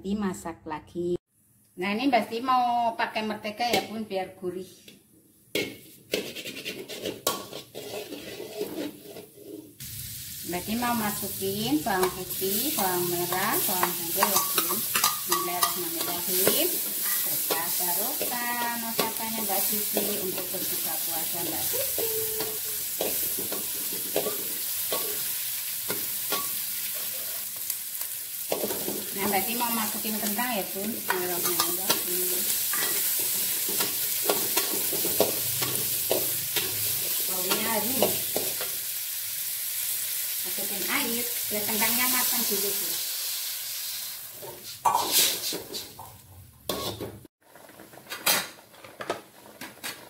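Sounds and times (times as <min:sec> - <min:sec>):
metal spatula scraping a pan: 0:05.6 - 0:09.8, 0:11.9 - 0:21.7, 0:22.4 - 0:27.5, 0:28.4 - 0:38.8, 0:44.3 - 0:46.0, 0:46.7 - 0:47.2
garlic sizzling in butter: 0:06.1 - 0:46.0.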